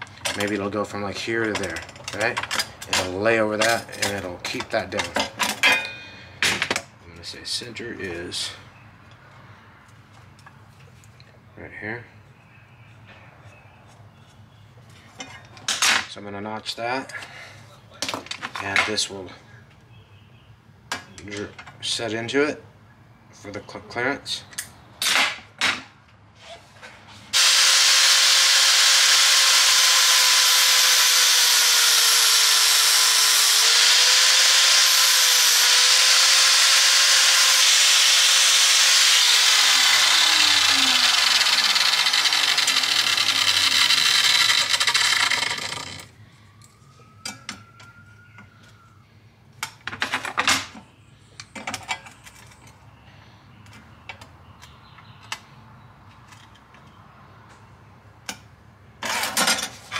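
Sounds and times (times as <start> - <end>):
angle grinder grinding steel: 27.4 - 46.1.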